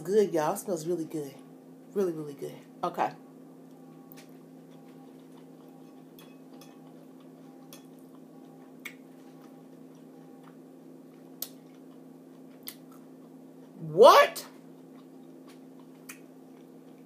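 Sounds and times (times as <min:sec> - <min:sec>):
steady low hum: 0:00.0 - 0:17.0
quiet chewing of food: 0:03.7 - 0:13.8, 0:14.6 - 0:17.0.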